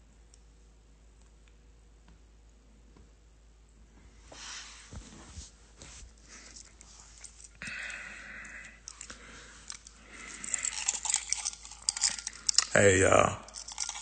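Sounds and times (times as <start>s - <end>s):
hand rustling near microphone: 4.0s - 7.6s.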